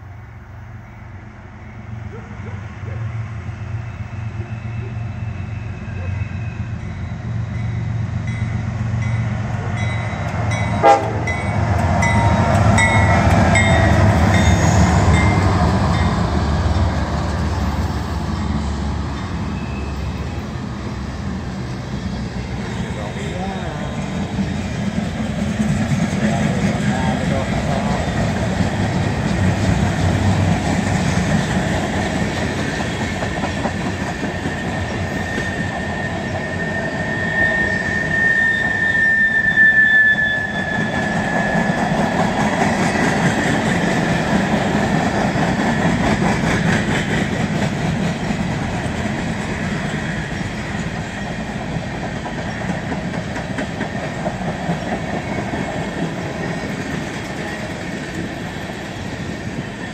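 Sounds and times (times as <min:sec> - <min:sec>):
steel wheels rolling on rail: 0:00.8 - 0:59.9
high wheel squeal: 0:03.7 - 0:07.6, 0:14.2 - 0:15.4, 0:19.2 - 0:20.6, 0:34.3 - 0:42.2.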